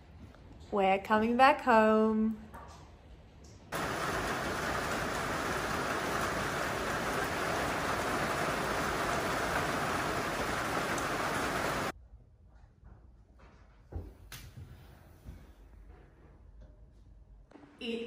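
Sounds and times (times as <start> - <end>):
rain falling: 3.7 - 11.9.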